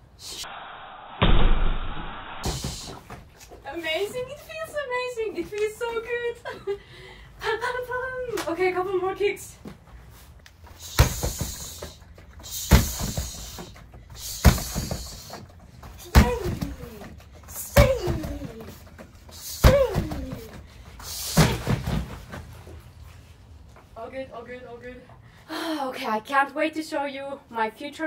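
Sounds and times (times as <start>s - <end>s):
person exhaling sharply: 2.4s - 3.2s
kicks thudding on striking dummy: 12.6s - 13.4s, 14.2s - 15.2s, 16.0s - 17.0s, 19.6s - 20.6s.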